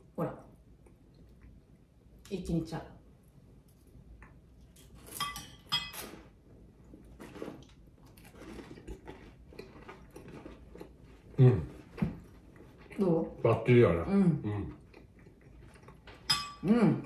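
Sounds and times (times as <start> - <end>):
spoons clinking on ceramic plates: 5.1 - 6.0, 16.2 - 16.6.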